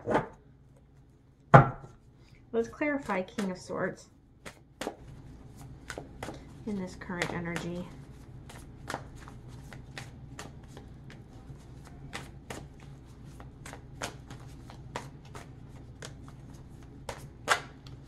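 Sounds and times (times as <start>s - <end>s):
cards being shuffled: 3.0s - 3.7s, 4.4s - 18.0s.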